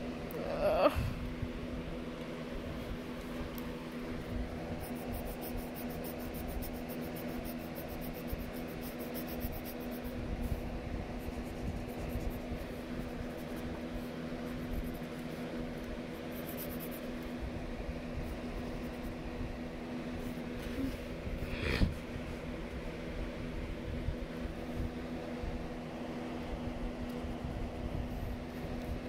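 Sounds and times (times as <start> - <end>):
steady low hum: 0.0 - 29.0
pencil scratching on paper: 4.7 - 10.2, 11.1 - 15.5, 16.1 - 17.2.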